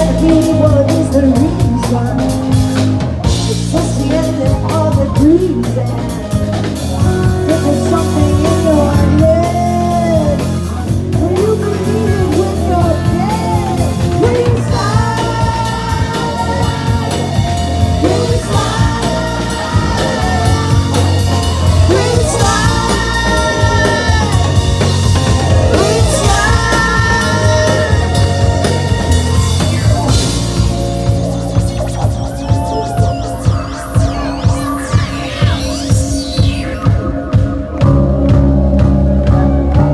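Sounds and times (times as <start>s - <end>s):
live rock band playing: 0.0s - 39.9s
person singing: 3.4s - 37.0s.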